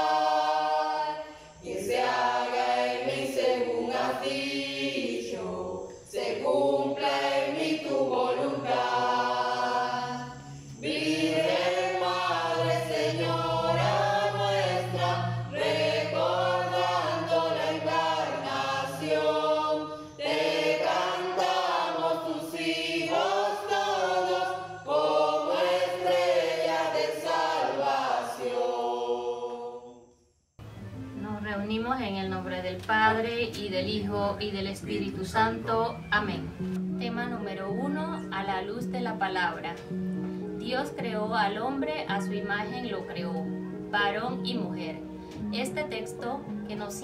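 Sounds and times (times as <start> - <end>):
mixed choir singing a hymn: 0.0 - 30.1.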